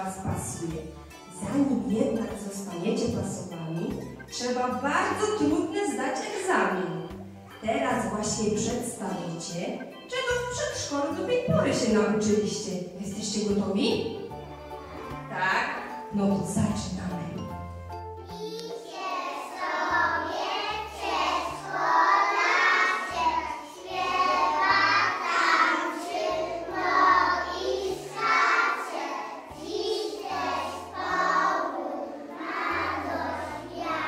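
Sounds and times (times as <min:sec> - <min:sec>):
children singing together: 0:14.4 - 0:15.3, 0:18.2 - 0:34.0.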